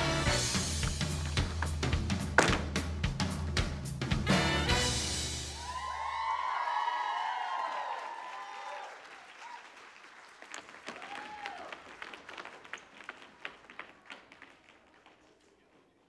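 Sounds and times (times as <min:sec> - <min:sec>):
cheers and whoops: 0:05.5 - 0:09.8, 0:10.8 - 0:12.0
audience applauding: 0:05.6 - 0:15.7.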